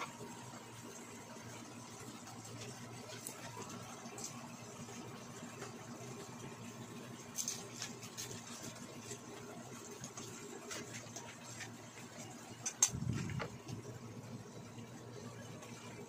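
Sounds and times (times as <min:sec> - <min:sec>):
low hum: 0:08.4 - 0:16.0.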